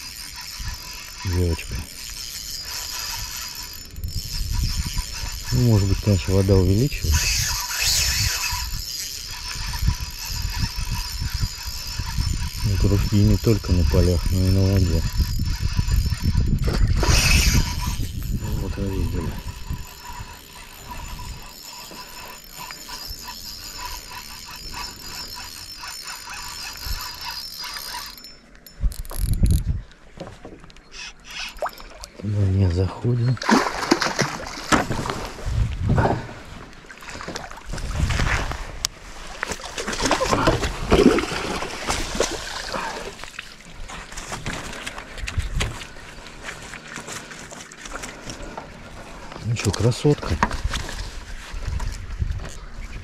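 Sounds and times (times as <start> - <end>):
fishing reel gears clicking: 0.0 - 29.7, 30.8 - 32.2.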